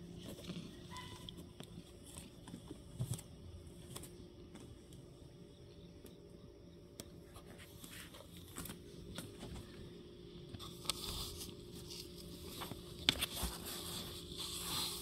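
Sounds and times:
steady low hum: 0:00.0 - 0:15.0
cat rubbing against cardboard box: 0:13.3 - 0:15.0.

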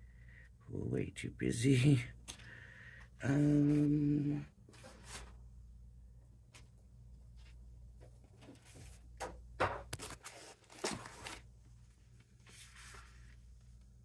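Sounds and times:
paper rustling and sliding: 0:04.7 - 0:05.4, 0:10.0 - 0:11.5, 0:12.2 - 0:13.6.

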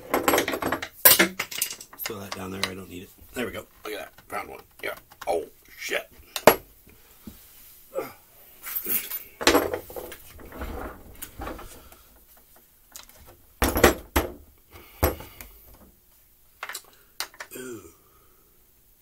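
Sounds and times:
metal tools clattering on workbench: 0:00.0 - 0:02.8, 0:08.7 - 0:11.7, 0:13.6 - 0:14.4.

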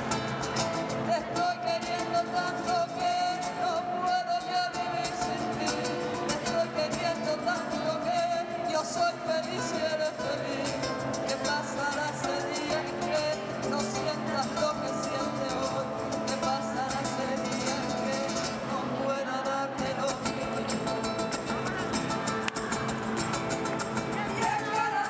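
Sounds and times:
live band rumba music: 0:00.0 - 0:19.0, 0:19.8 - 0:25.0
woman singing lead: 0:00.0 - 0:25.0
people clapping in rhythm: 0:21.7 - 0:25.0.

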